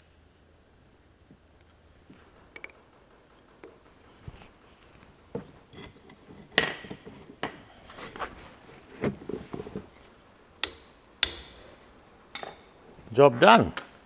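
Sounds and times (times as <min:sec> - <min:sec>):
knocks and tool clatter: 0:02.1 - 0:02.8, 0:03.6 - 0:12.7.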